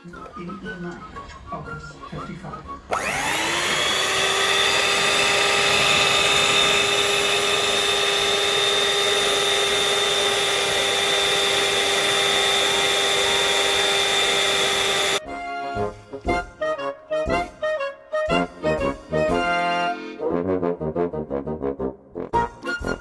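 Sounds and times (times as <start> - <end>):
stand mixer whining: 2.9 - 15.2.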